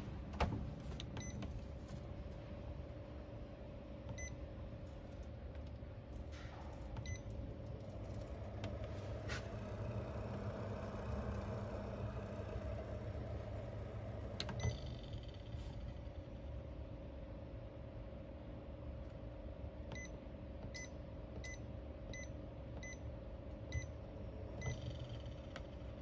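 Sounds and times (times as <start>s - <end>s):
fridge hum: 0.0s - 26.0s
fridge control panel beeps: 1.0s - 1.4s, 4.1s - 4.4s, 7.0s - 15.6s, 19.9s - 23.1s, 23.7s - 24.0s, 24.6s - 25.0s.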